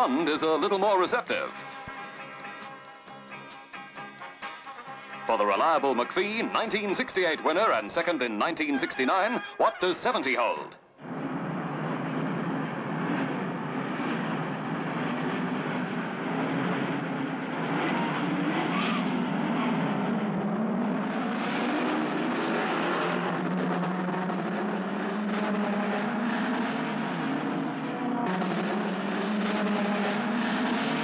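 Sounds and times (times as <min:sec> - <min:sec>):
racing car engines revving: 0:11.0 - 0:31.0.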